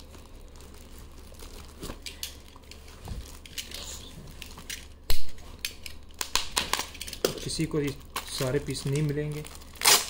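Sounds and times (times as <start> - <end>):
packaging rustling and crinkling: 0.0 - 10.0.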